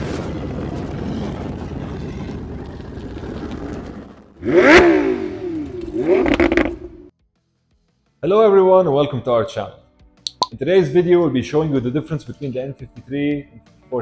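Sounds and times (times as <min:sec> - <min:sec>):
engine revving: 0:04.4 - 0:07.1.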